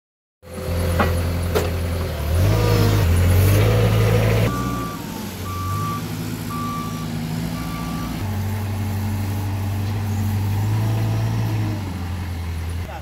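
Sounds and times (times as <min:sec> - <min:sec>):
forklift engine running: 0:00.5 - 0:13.0
warning beeper beeps: 0:04.5 - 0:08.2.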